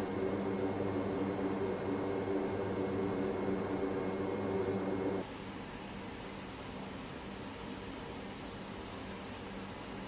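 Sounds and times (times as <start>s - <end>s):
turboprop engines humming: 0.0s - 5.2s.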